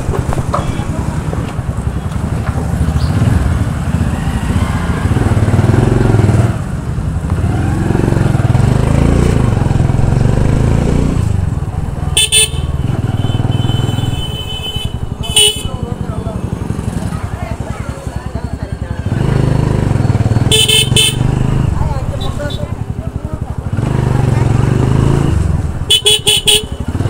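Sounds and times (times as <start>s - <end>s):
motorcycle engine running: 0.0s - 27.0s
motorcycle horn honk: 12.1s - 16.0s, 20.4s - 21.4s, 25.9s - 27.0s.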